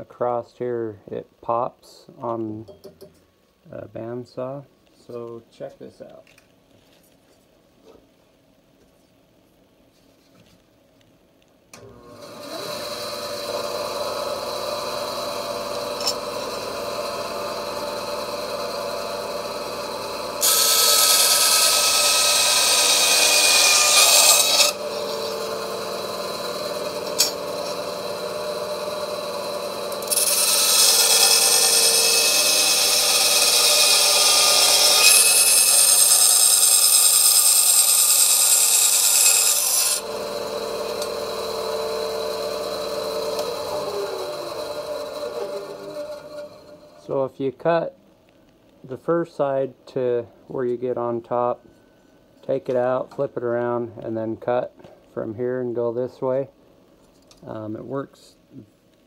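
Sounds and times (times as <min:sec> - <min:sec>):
bandsaw running: 0:11.8 - 0:47.0
saw blade rasping through metal: 0:12.3 - 0:17.6, 0:20.4 - 0:46.9.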